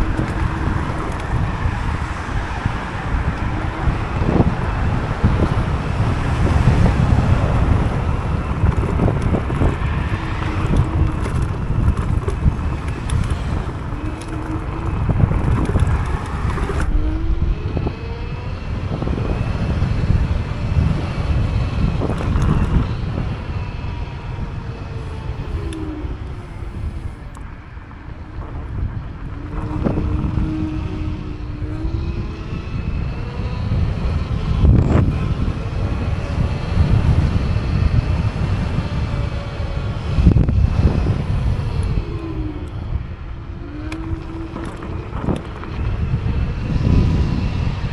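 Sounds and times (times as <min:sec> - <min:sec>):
road noise: 0:00.0 - 0:47.9
wind buffeting microphone: 0:00.0 - 0:47.9.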